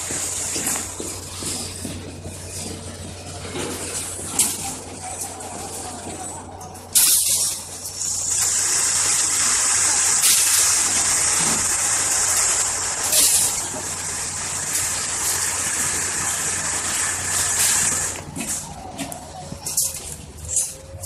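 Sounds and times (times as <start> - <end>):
tractor diesel engine idling: 0.0 - 21.0
loud continuous high hiss: 6.8 - 18.7.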